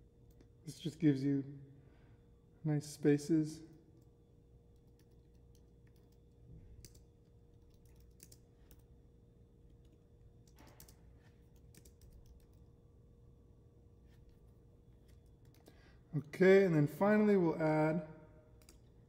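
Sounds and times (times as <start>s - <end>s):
low steady hum: 0.0s - 19.0s
keyboard typing: 4.7s - 8.9s, 9.7s - 12.7s, 15.0s - 15.8s.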